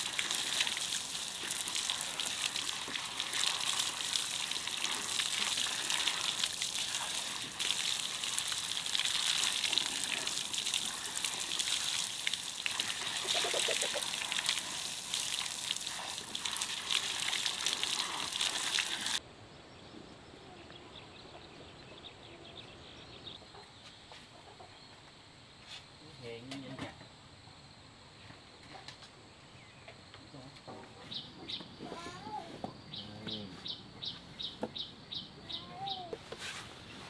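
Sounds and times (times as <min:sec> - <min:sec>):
hose water splashing into metal: 0:00.0 - 0:19.2.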